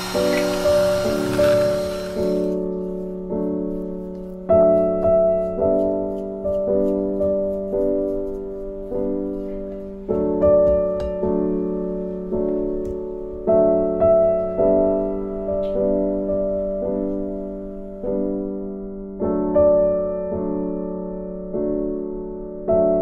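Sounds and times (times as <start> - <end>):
gentle piano chords: 0.0 - 23.0.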